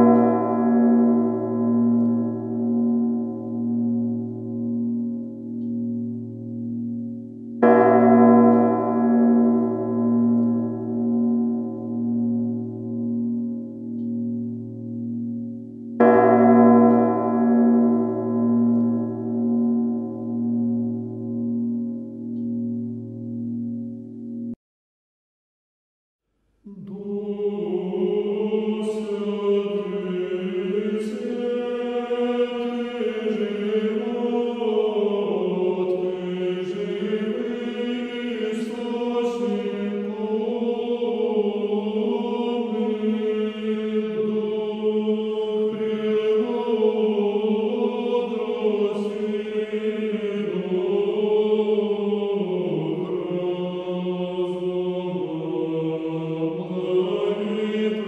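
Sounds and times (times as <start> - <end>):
choir chanting in harmony: 0.0 - 3.2, 26.7 - 58.0.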